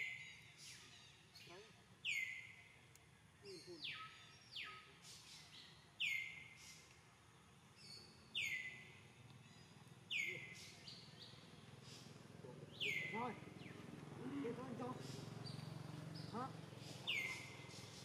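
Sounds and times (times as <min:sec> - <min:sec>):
bird calling with falling pitch: 0:12.8 - 0:17.9.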